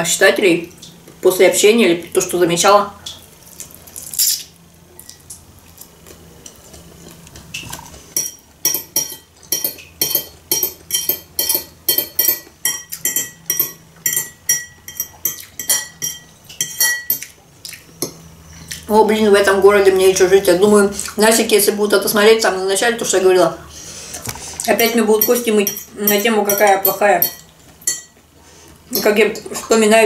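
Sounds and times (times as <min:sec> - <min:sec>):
fork clinking on china bowl: 0:08.2 - 0:17.3, 0:24.8 - 0:28.1.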